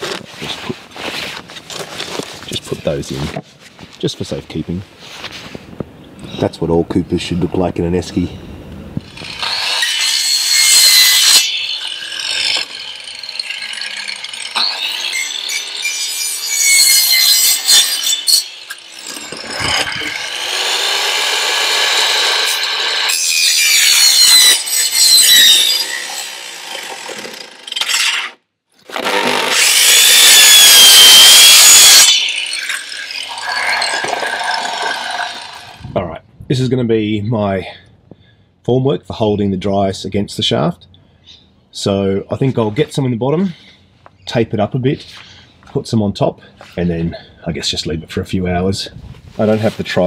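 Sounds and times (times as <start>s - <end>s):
power tool cutting plastic pipe: 9.0s - 35.8s.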